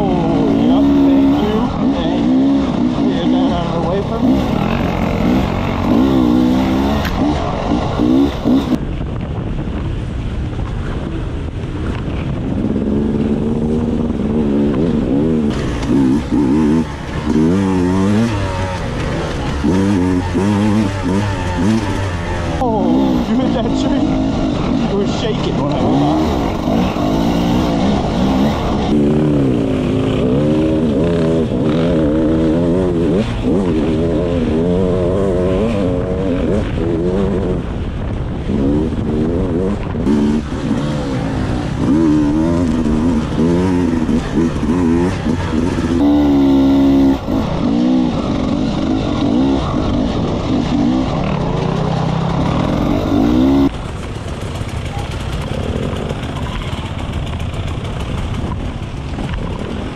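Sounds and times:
dirt bike engine revving: 0.0 - 8.8, 12.5 - 59.9.

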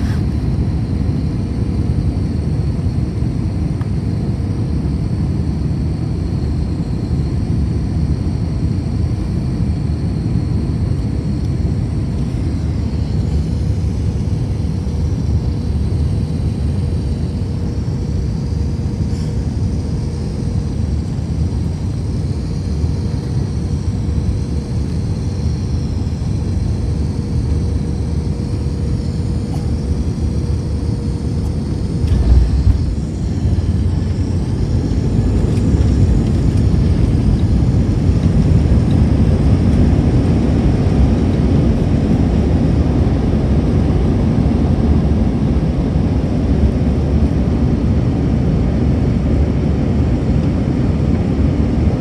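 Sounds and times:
faint steady hum: 0.0 - 52.0
jet engines rumbling: 0.0 - 52.0
rushing air: 30.6 - 36.1.

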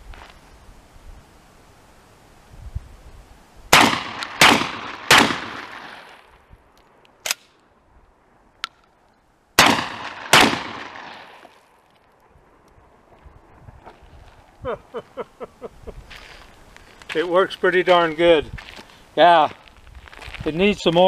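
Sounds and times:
shotgun shots with echo: 3.7 - 6.1, 9.6 - 11.4.

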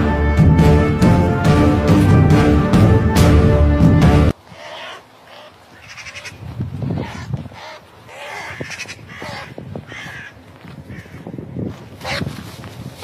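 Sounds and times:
crows cawing: 4.6 - 6.4, 7.0 - 11.3.

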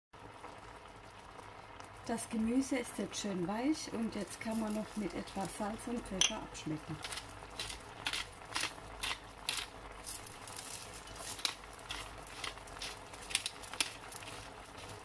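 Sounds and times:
sauce bubbling: 0.2 - 15.0
spice mill grinding: 7.0 - 15.0.

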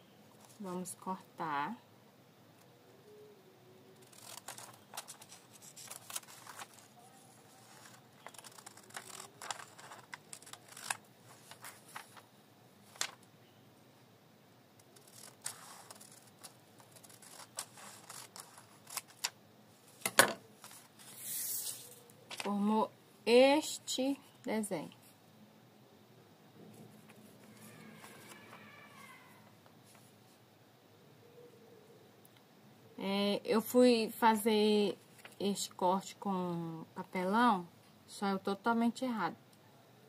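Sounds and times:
scissors snipping paper: 4.0 - 6.9, 7.5 - 11.7, 14.9 - 19.3.

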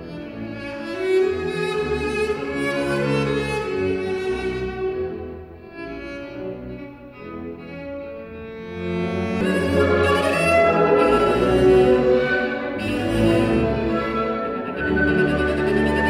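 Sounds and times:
orchestra playing slow held notes: 9.4 - 16.0.

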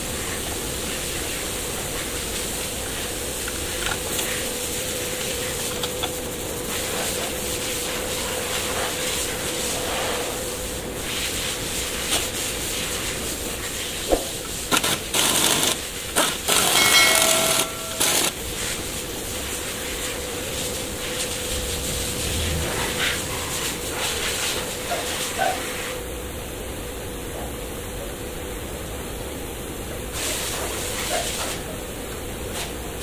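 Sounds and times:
workshop hum: 0.0 - 33.0
pneumatic tool air bursts: 14.7 - 18.4.

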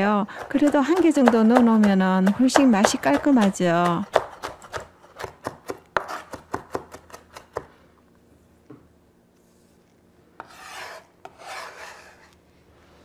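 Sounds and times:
knife chopping on wooden board: 0.4 - 7.7
knife scraping across board: 6.0 - 6.4, 10.4 - 12.4.

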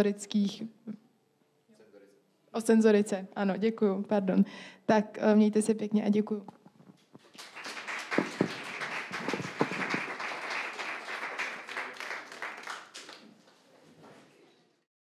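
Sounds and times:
crowd clapping: 7.2 - 13.6.

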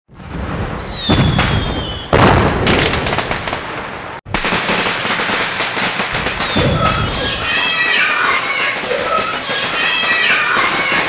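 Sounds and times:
firecrackers crackling: 0.1 - 11.0
firework whistle: 0.8 - 2.1, 6.2 - 11.0.

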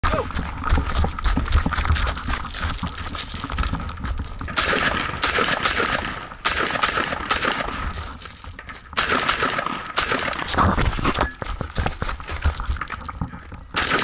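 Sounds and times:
footsteps crunching on gravel: 0.1 - 4.6, 7.6 - 9.0, 9.8 - 13.7
rifle shots at steel targets: 4.5 - 8.1, 8.9 - 11.4, 13.7 - 14.0.

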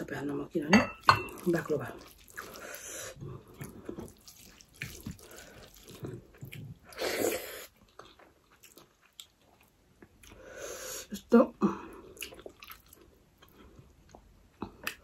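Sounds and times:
wet squelching of hand mixing food: 1.3 - 7.0.

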